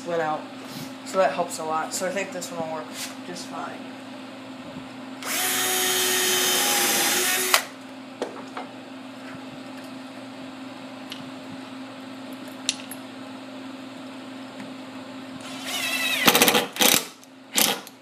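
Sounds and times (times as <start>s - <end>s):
steady low hum: 0.0s - 18.0s
cordless drill driving screw: 5.2s - 7.6s, 15.4s - 17.0s.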